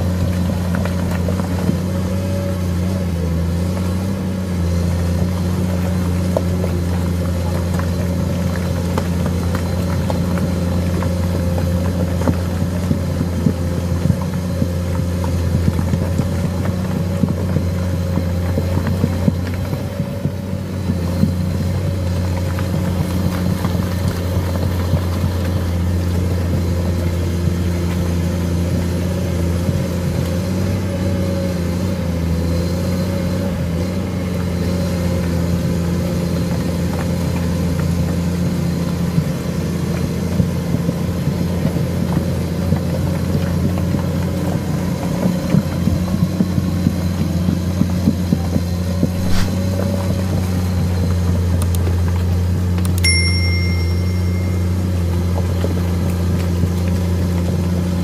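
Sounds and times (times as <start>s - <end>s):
excavator diesel engine running: 0.0s - 58.0s
high ding: 53.0s - 55.3s.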